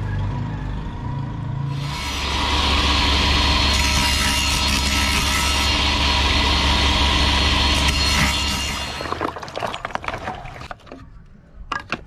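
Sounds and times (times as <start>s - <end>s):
mechanical running noise: 4.6s - 9.0s.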